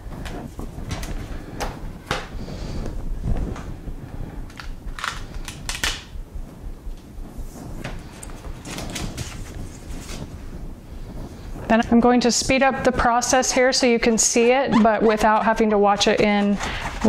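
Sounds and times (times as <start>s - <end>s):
paper rustling: 7.8s - 10.6s, 15.0s - 17.0s.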